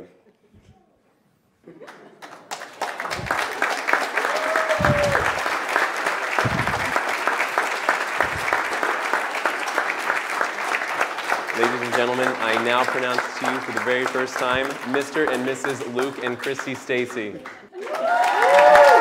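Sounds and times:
crowd clapping: 1.8 - 19.0
low thumps: 6.4 - 6.9.

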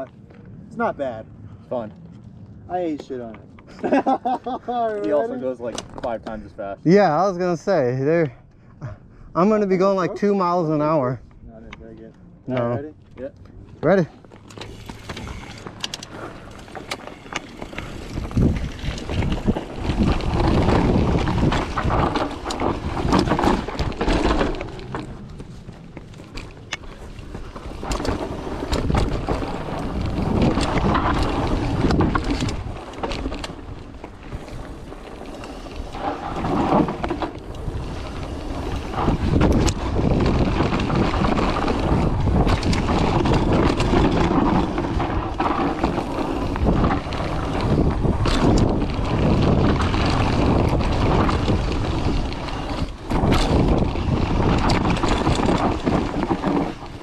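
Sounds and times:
bike rattling and knocking: 12.6 - 57.0
tyres rolling on dirt: 12.6 - 57.0
wind rushing over microphone: 14.8 - 57.0.

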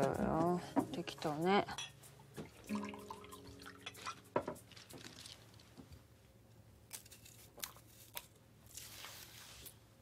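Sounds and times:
liquid trickling into glass: 2.5 - 4.2.

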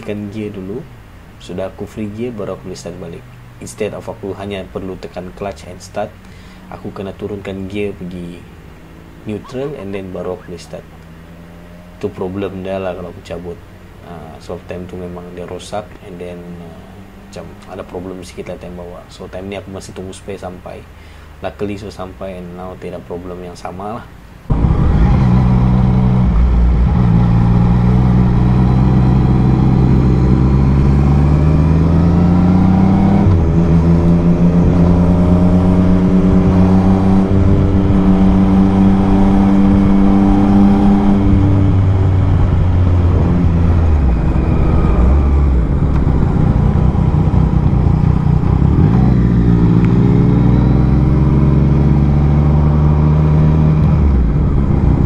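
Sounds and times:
motorcycle engine revving: 10.8 - 12.3, 16.5 - 18.0, 24.5 - 55.0.

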